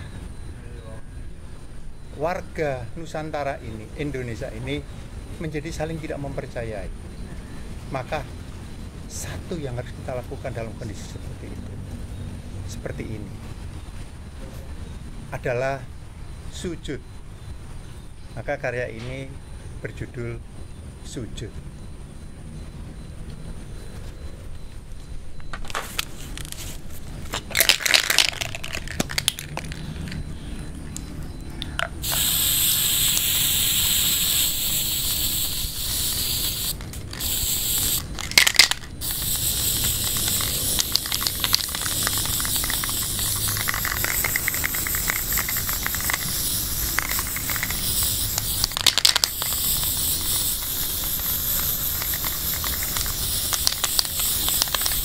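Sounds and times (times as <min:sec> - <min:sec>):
spray paint can hissing: 0:27.4 - 0:30.1, 0:32.0 - 0:55.0.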